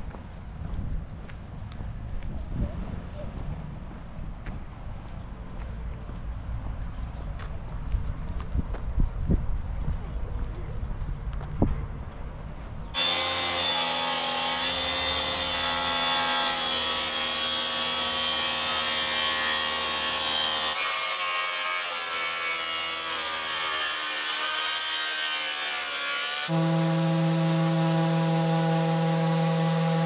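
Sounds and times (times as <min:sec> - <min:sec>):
track saw cutting wood: 0:13.0 - 0:30.0.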